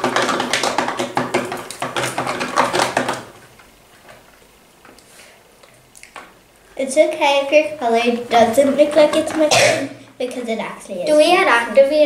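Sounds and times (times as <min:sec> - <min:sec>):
slime mixing clicks and knocks: 0:00.0 - 0:04.3.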